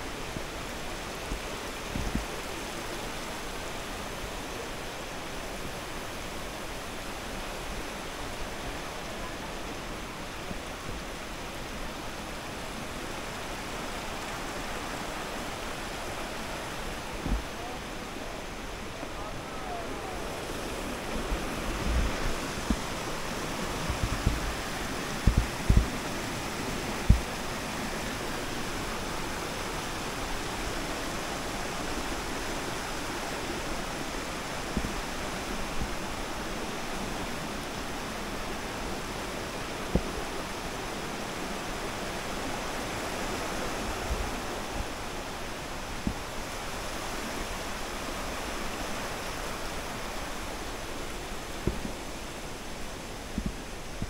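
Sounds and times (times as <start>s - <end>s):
stream water rushing: 0.0s - 54.0s
low thumps: 25.2s - 26.0s, 27.0s - 27.3s.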